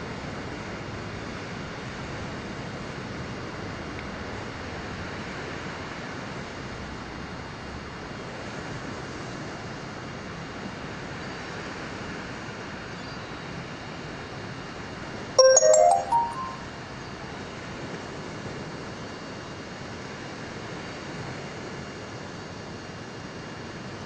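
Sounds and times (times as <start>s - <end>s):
electronic chime climbing in pitch: 15.4s - 16.7s.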